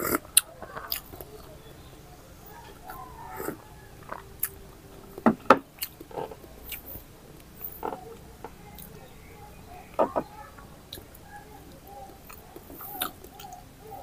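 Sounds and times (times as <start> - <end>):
mouth clicks and smacks: 0.0 - 1.6, 10.9 - 13.6.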